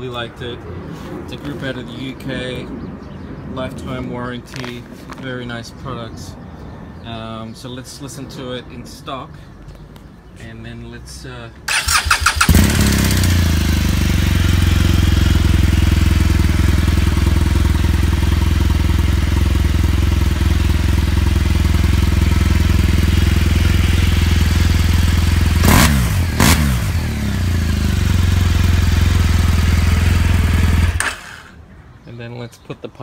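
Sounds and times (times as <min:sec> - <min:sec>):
motorcycle engine idling: 0:11.7 - 0:31.6.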